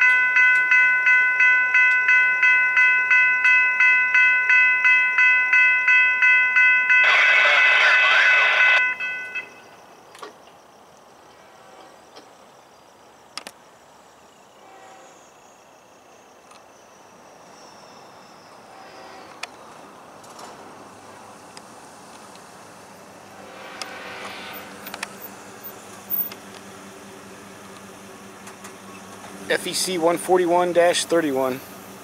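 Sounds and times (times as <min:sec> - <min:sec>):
crossing warning bell dinging: 0:00.0 - 0:09.8
rushing noise: 0:20.6 - 0:28.4.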